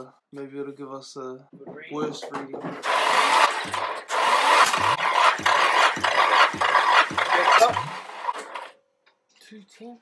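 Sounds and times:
engine cranking on starter motor: 2.8s - 8.8s.

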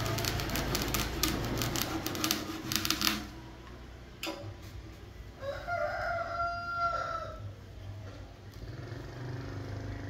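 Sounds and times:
chisel rasping on lathe wood: 0.0s - 3.3s
rooster crowing: 5.4s - 7.5s.

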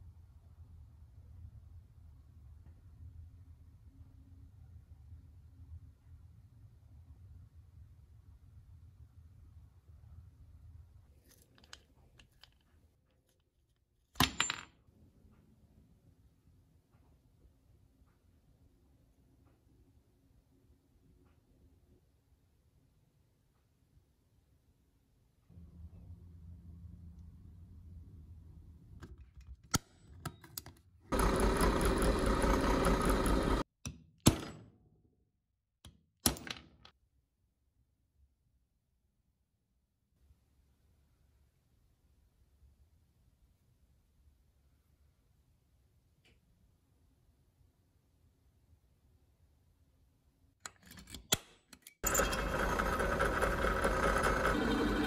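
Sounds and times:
drill press running: 31.1s - 33.6s, 52.0s - 55.0s
metal parts clicking: 50.6s - 52.2s.

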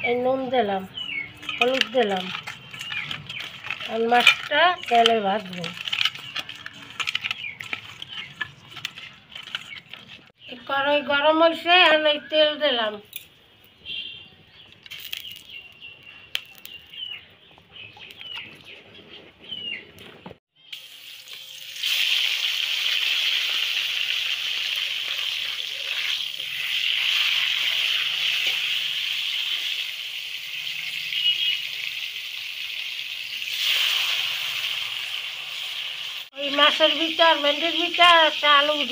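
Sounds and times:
fish sizzling in hot oil: 20.7s - 38.9s.

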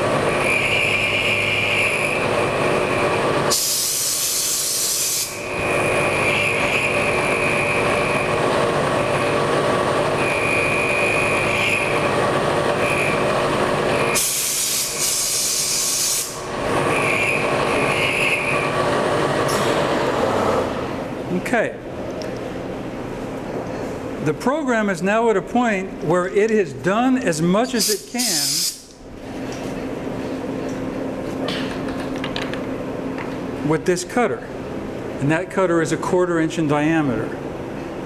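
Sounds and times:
loud hiss bursts: 3.5s - 5.4s, 14.2s - 16.5s, 27.8s - 28.9s
milling machine cutting whine: 5.1s - 20.7s.

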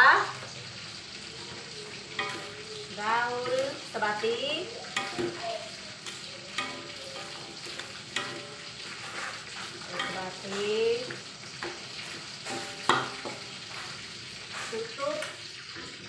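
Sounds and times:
sauce sizzling: 0.0s - 16.0s
spatula scraping a wok: 0.9s - 16.0s
spatula knocking against pan: 4.8s - 13.9s.

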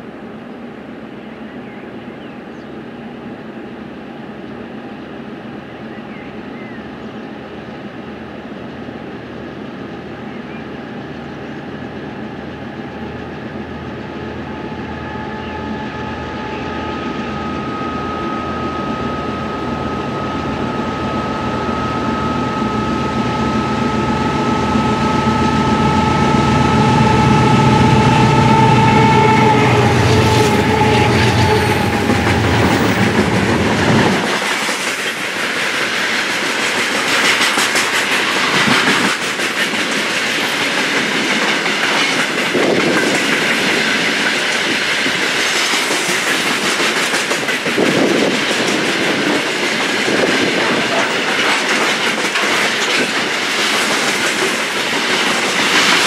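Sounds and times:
diesel locomotive engines whining: 0.0s - 56.0s
train wheels clacking over rail joints: 30.3s - 56.0s.

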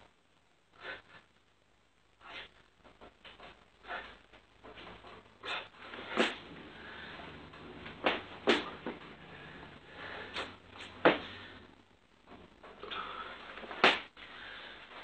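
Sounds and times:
faint low hum: 0.0s - 15.0s
hands and feet thumping floor: 2.9s - 6.6s, 7.4s - 9.1s, 10.4s - 11.4s, 13.6s - 14.2s.

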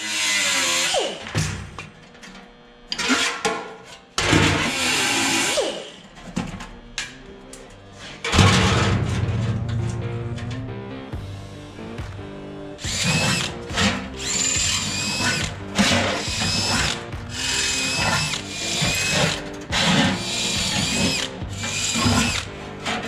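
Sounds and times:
drill boring into steel: 0.0s - 1.3s, 4.6s - 6.0s, 12.8s - 23.0s.

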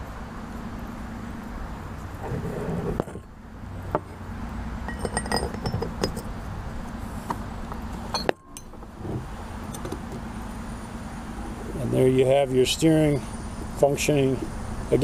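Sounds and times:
metal parts clinking on table: 4.9s - 6.3s.

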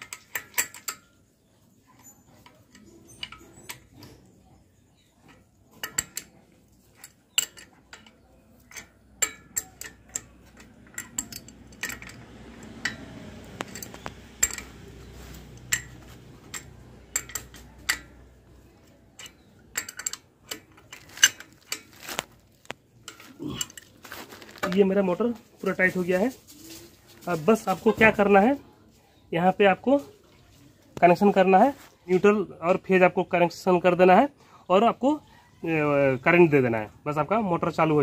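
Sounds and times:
spanner clinking on bolts: 0.0s - 4.4s, 5.0s - 25.8s.

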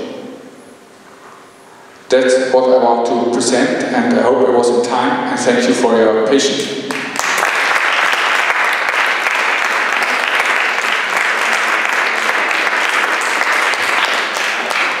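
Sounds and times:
audience applauding: 6.9s - 15.0s.

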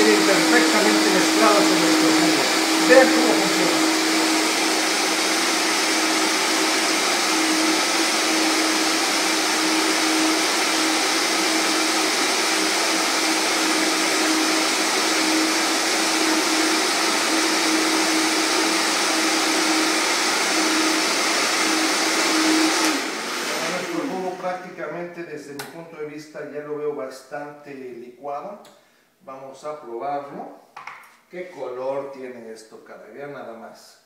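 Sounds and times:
blender running: 0.0s - 24.6s.

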